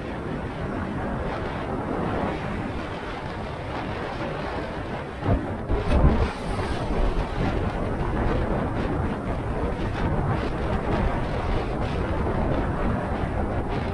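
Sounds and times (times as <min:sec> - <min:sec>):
low wind buffeting: 0:00.0 - 0:13.9
wind rushing over microphone: 0:00.0 - 0:13.9
motorcycle road noise: 0:05.4 - 0:11.9.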